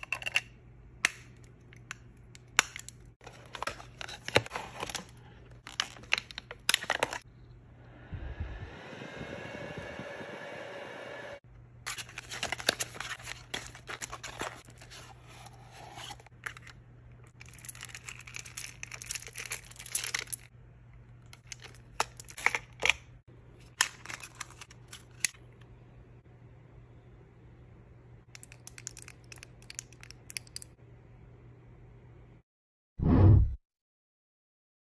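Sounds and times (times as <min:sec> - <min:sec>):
low steady hum: 0:00.0 - 0:22.6, 0:23.3 - 0:32.4
packaging crinkling and rustling: 0:02.8 - 0:07.2, 0:11.9 - 0:20.5, 0:23.6 - 0:25.4
handheld fan whirring: 0:07.8 - 0:11.4.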